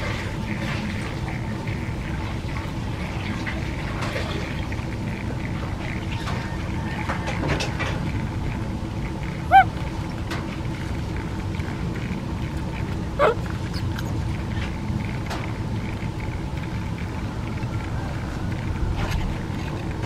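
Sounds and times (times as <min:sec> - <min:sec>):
steady low rumble: 0:00.0 - 0:20.0
baby monkey squeaking: 0:09.4 - 0:09.7.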